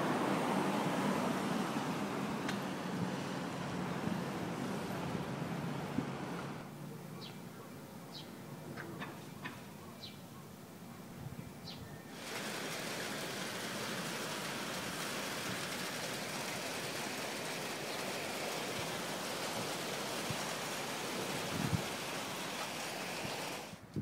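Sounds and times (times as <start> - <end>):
rain hissing: 0.0 - 6.7, 12.0 - 23.9.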